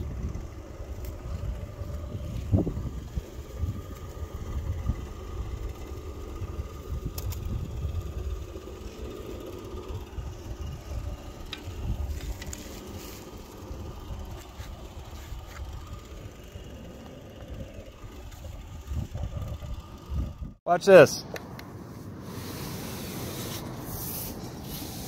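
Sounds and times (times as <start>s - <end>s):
wind buffeting microphone: 0.0s - 8.8s, 9.7s - 20.6s.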